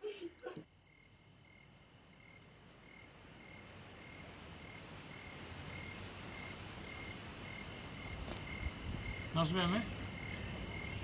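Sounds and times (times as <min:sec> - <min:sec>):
crickets chirping: 0:00.0 - 0:11.0
high insect hum: 0:00.0 - 0:11.0.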